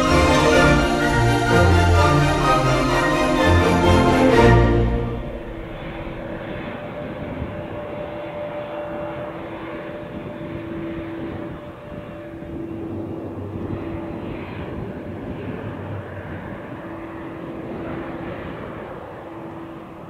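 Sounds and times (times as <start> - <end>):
jet engines rumbling: 0.0 - 20.0.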